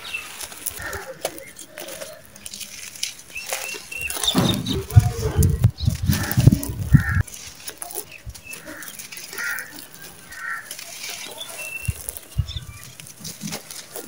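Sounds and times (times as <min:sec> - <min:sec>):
soil crushed by hand: 0:00.0 - 0:14.0
bird chirps: 0:03.3 - 0:07.2, 0:07.9 - 0:13.0.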